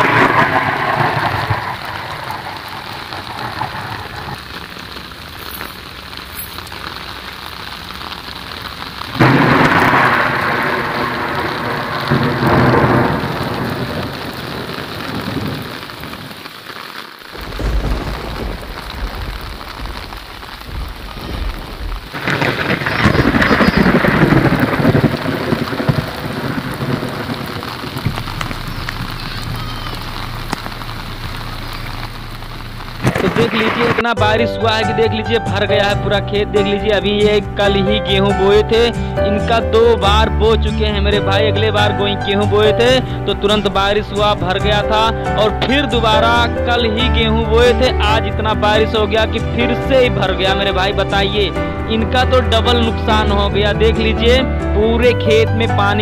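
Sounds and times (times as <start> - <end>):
heavy rain on water: 0.0 - 56.0
low rumble: 17.4 - 34.1.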